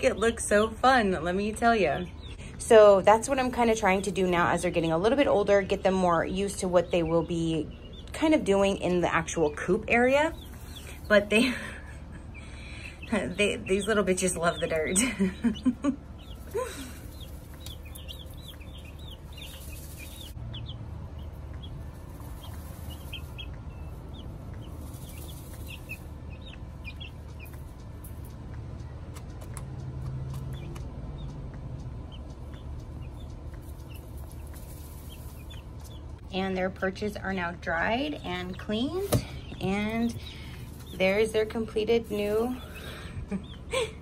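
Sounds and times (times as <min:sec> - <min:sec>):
chicks peeping: 0:00.0 - 0:44.0
low hum: 0:00.0 - 0:44.0.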